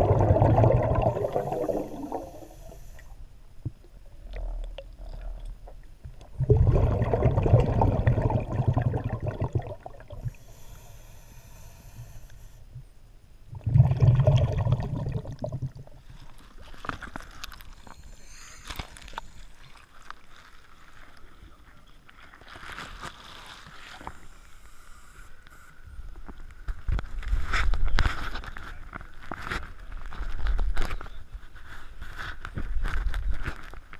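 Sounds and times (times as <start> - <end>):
underwater exhaust bubbles: 0.0 - 10.5, 13.5 - 16.1
regulator inhalation hiss: 1.4 - 3.2, 10.2 - 12.6, 17.8 - 19.6.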